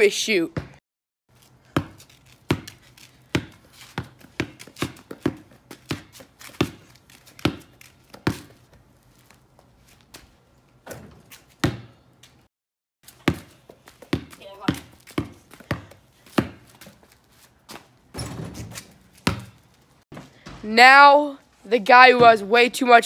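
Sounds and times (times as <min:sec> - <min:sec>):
basketball bouncing on concrete: 0:00.5 - 0:00.8, 0:01.4 - 0:08.8, 0:10.8 - 0:12.0, 0:13.1 - 0:21.1, 0:22.0 - 0:22.7.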